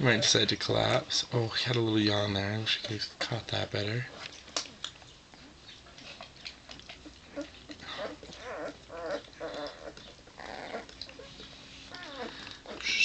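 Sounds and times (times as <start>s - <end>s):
puppies whimpering and squeaking: 0.0s - 1.0s, 4.0s - 13.0s
puppy whines: 6.8s - 13.0s.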